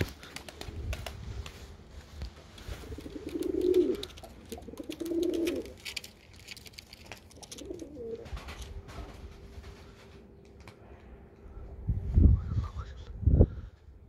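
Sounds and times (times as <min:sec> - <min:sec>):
pigeon cooing: 0:02.8 - 0:05.8, 0:07.4 - 0:08.3.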